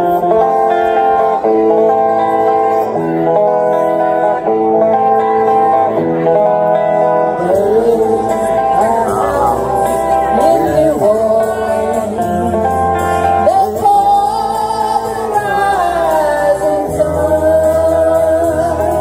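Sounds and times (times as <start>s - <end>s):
country music backing track: 0.0s - 19.0s
woman singing: 7.4s - 19.0s.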